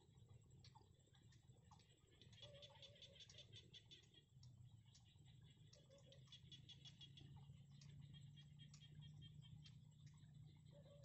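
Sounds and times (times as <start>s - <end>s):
low steady hum: 0.0s - 11.0s
chicks ticking chatter: 0.6s - 11.0s.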